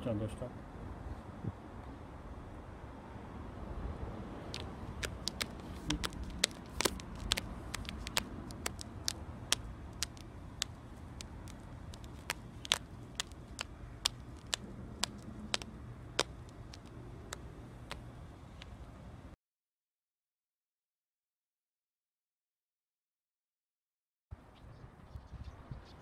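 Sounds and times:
low outdoor rumble: 0.0 - 19.4
sharp clicks: 4.5 - 18.8.

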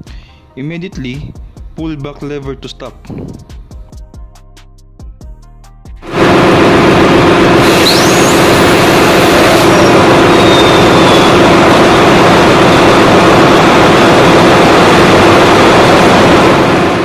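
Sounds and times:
diesel generator engine running: 6.0 - 17.0.

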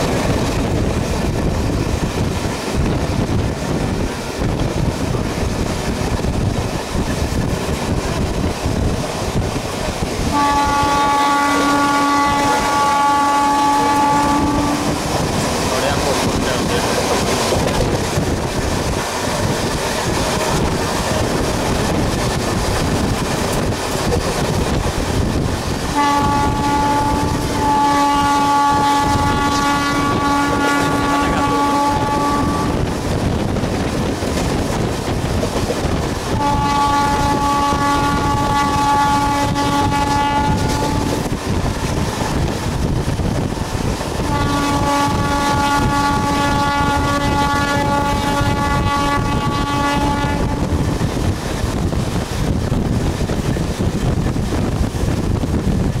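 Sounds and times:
train wheel and wind noise: 0.0 - 56.0
train horn blasts: 10.2 - 17.3, 25.9 - 33.0, 36.3 - 41.4, 44.2 - 51.0.

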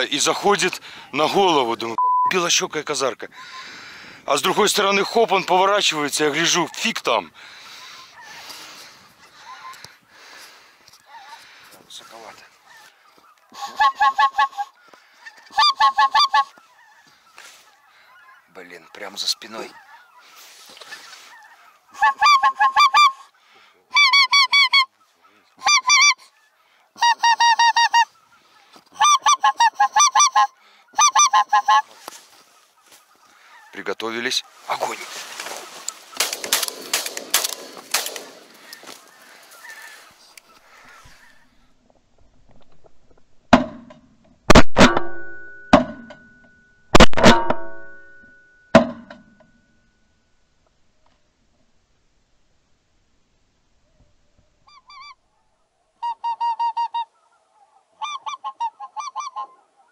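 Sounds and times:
goose honking: 11.1 - 23.3, 25.6 - 36.2, 38.4 - 41.4, 56.0 - 59.9
shotgun shots: 36.2 - 38.6, 44.5 - 45.4, 47.0 - 47.8
ringing tone: 45.0 - 50.1.

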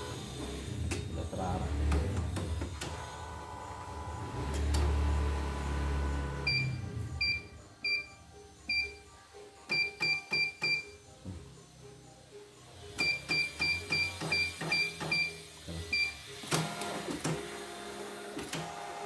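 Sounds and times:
low motor hum: 0.0 - 7.4.

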